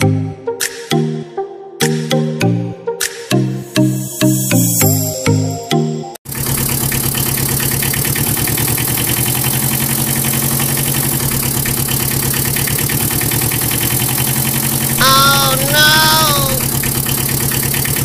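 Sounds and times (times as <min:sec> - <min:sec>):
vehicle engine idling: 0:06.3 - 0:18.0
high-pitched voice: 0:15.0 - 0:16.7.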